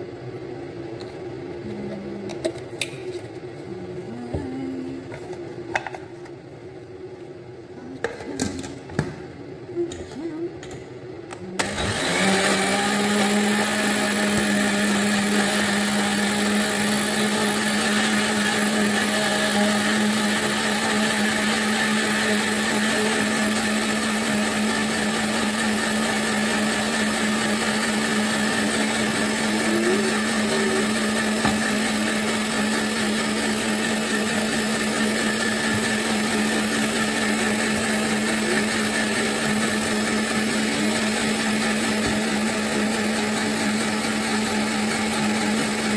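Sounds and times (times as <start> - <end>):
blender motor running: 11.6 - 45.9.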